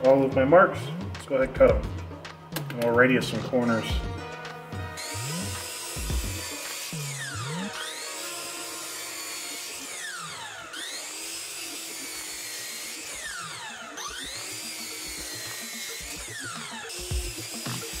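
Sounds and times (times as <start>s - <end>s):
miter saw motor whining: 4.8s - 18.0s.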